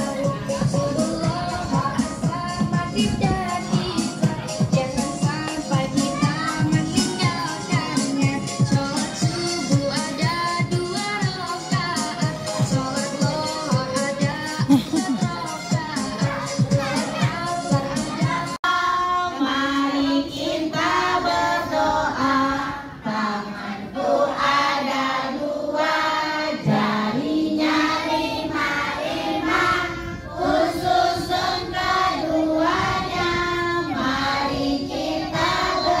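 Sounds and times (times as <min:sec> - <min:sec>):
children and women singing: 0:00.0 - 0:36.0.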